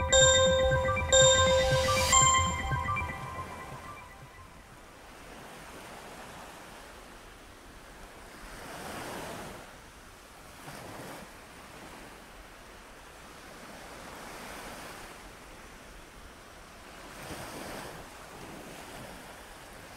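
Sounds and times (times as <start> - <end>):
ocean waves washing in: 0.0 - 4.5.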